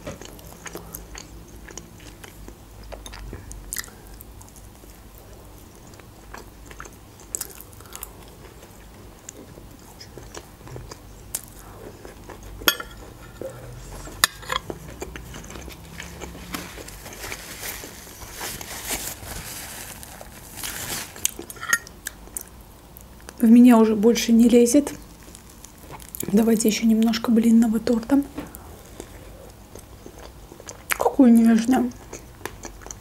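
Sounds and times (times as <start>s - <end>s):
chewing and wet mouth sounds: 0.0s - 18.8s, 24.8s - 27.2s, 28.3s - 33.0s.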